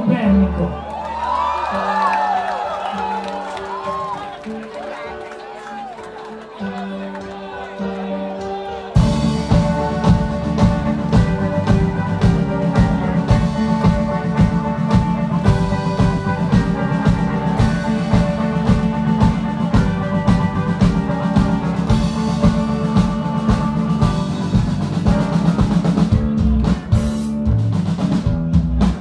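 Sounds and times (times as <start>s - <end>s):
bass guitar: 0.0s - 4.8s, 5.6s - 29.0s
electric guitars: 0.0s - 29.0s
driving drum beat: 9.0s - 29.0s.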